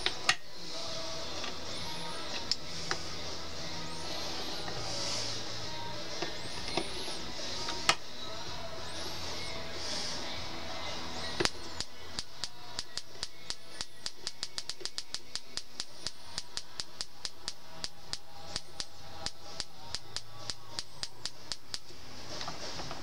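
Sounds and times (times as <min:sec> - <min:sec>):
sparks snapping: 0:11.2 - 0:23.0.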